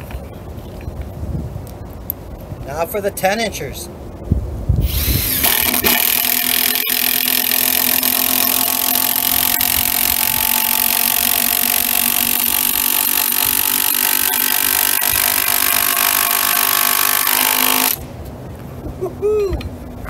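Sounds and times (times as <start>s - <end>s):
power drill driving screw into wood: 4.8s - 18.0s.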